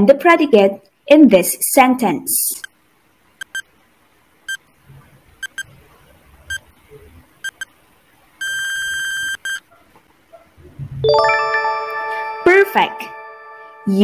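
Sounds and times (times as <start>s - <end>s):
short electronic beeps: 3.4s - 3.7s, 5.4s - 5.7s, 7.4s - 7.7s, 8.4s - 9.6s
long electronic beep: 11.1s - 14.0s.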